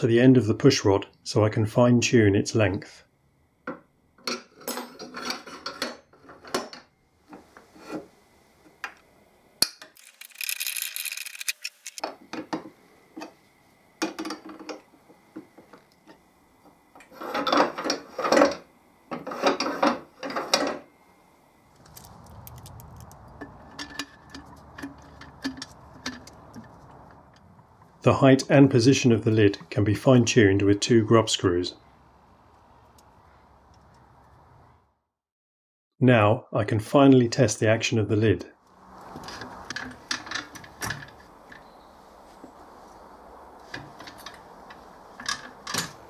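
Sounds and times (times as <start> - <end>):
metal parts rattling: 10.0 - 12.0
metal clicks and knocks: 22.5 - 27.5.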